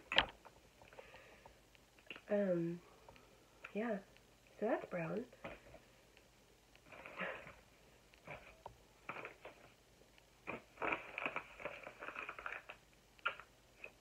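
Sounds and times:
padded mailer rustling and crackling: 0:08.2 - 0:09.8, 0:10.4 - 0:13.5.

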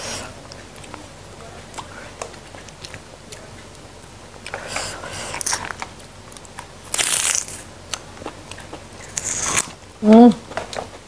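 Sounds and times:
crunching and tearing of pod: 0:05.2 - 0:09.8.

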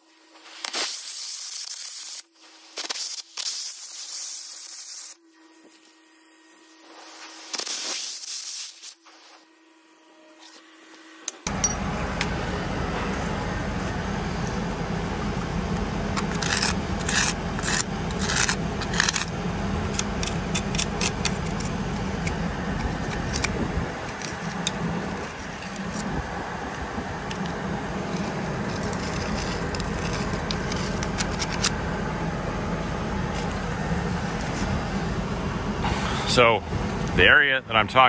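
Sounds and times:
metal scraping and clinking: 0:11.2 - 0:12.3, 0:12.9 - 0:26.1, 0:27.3 - 0:31.8
low engine drone: 0:11.2 - 0:38.0.

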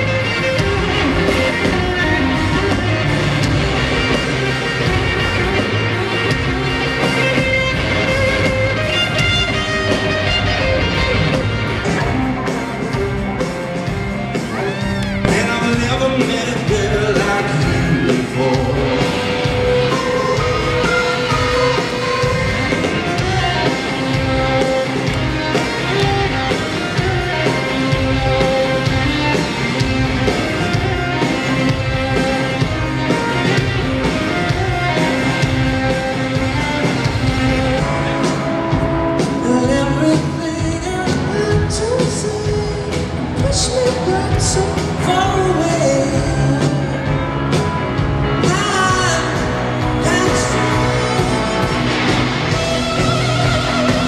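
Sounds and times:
drum beat: 0:00.0 - 0:39.5
rock band playing live: 0:00.0 - 0:54.0
person singing: 0:14.4 - 0:23.8, 0:39.2 - 0:47.3, 0:48.4 - 0:51.9.

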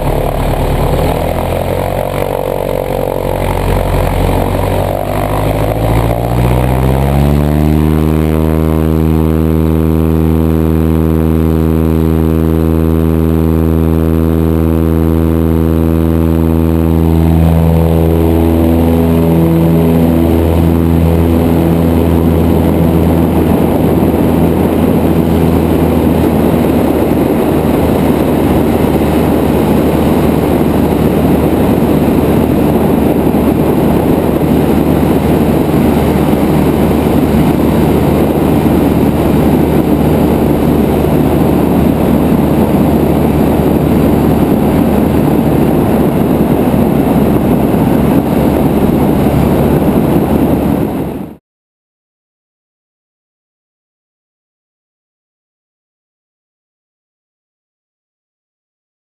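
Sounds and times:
propeller plane engine: 0:00.0 - 0:51.4
rush of propeller and wind: 0:00.0 - 0:51.4.

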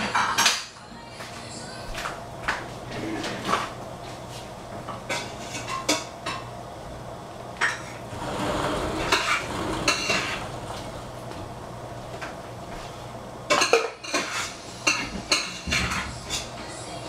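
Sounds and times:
dishes and cutlery clattering: 0:00.0 - 0:00.8, 0:05.0 - 0:06.5, 0:07.6 - 0:11.1, 0:13.5 - 0:16.5
steady low hum: 0:01.6 - 0:15.4.

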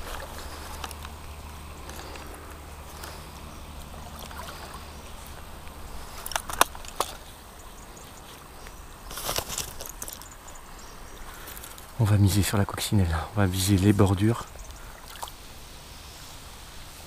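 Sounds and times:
water sloshing and splashing: 0:00.0 - 0:10.6, 0:14.6 - 0:15.6
faint moving water: 0:00.0 - 0:17.0.

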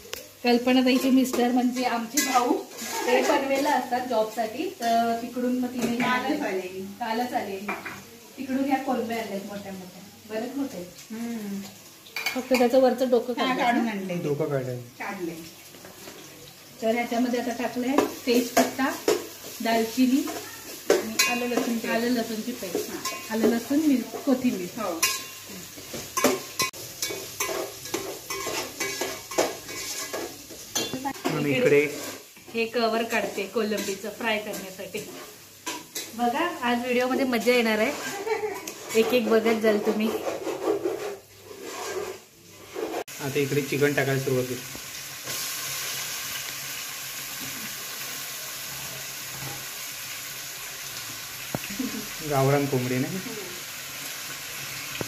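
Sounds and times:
food sizzling in oil: 0:00.0 - 0:55.0
metal spoon scraping a pot: 0:00.9 - 0:05.0, 0:20.2 - 0:22.0, 0:22.6 - 0:32.4, 0:37.7 - 0:43.1.

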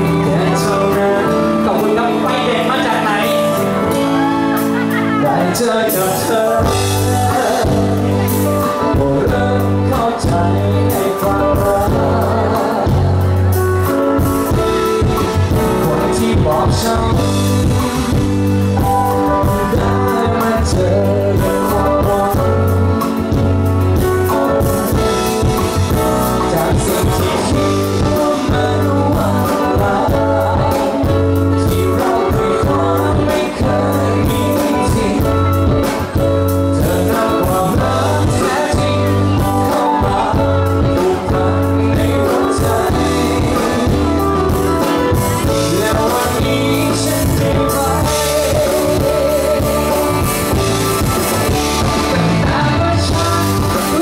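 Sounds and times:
live rock band with singer: 0:00.0 - 0:54.0.

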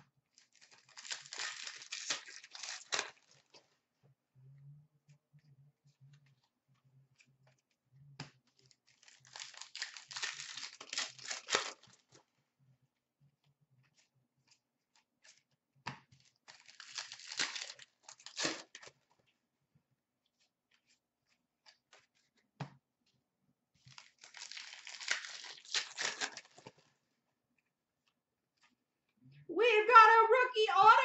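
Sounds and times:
card pack wrapper tearing: 0:00.4 - 0:03.4, 0:08.9 - 0:11.9, 0:16.5 - 0:18.9, 0:23.8 - 0:26.8.

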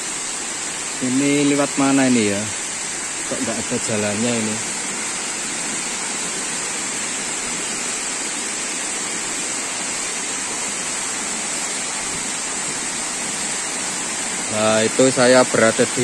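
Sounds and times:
high hiss: 0:00.0 - 0:16.0
waterfall rushing into pool: 0:00.0 - 0:16.0.

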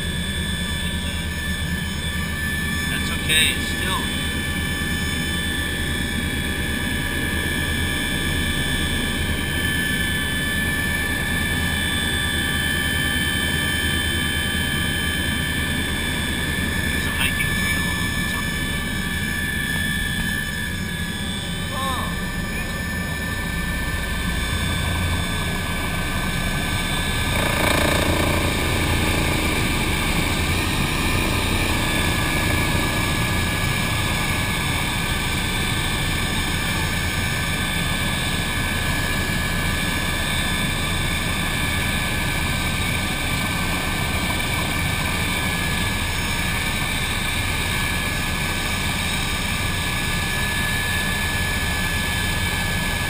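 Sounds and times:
helicopter rotor and engine drone: 0:00.0 - 0:53.0
turbine whine: 0:00.0 - 0:53.0.

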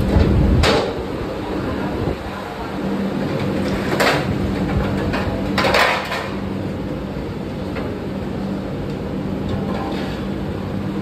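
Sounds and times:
steady hum: 0:00.0 - 0:11.0
kitchen utensils clattering: 0:03.7 - 0:06.4.

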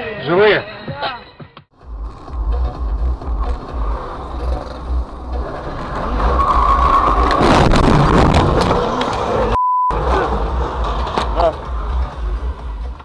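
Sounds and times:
road and engine rumble: 0:01.7 - 0:13.0
loud crashing and clattering: 0:05.8 - 0:09.4.

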